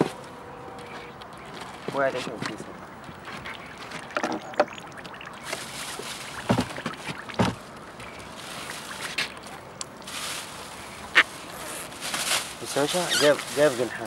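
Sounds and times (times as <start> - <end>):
water lapping against wooden boat: 1.0 - 12.0
thumps: 6.3 - 7.6.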